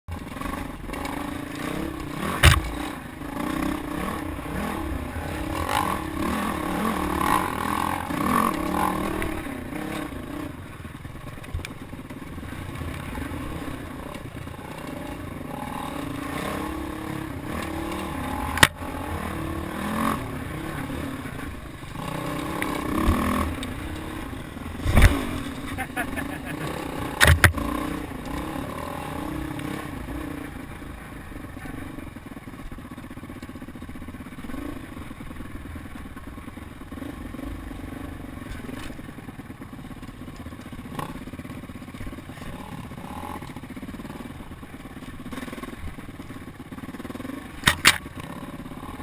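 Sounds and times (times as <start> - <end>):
dirt bike engine revving: 0.1 - 49.0.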